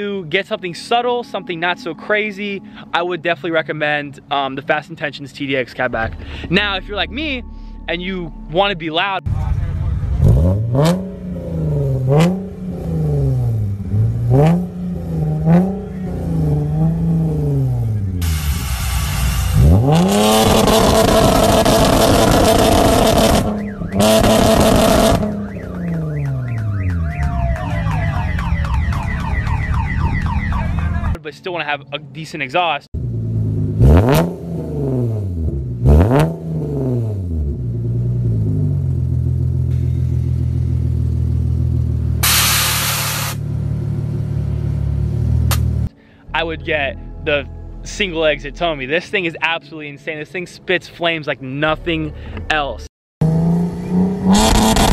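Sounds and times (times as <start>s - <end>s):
car engine idling: 9.3s - 19.8s, 37.6s - 45.9s
car engine revving: 9.3s - 30.5s, 33.0s - 45.9s, 53.2s - 54.9s
exhaust crack: 9.3s - 30.5s, 33.0s - 45.9s.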